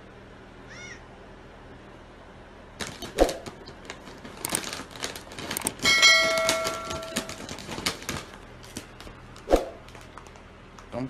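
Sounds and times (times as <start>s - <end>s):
foil bag crinkling: 2.8s - 10.5s.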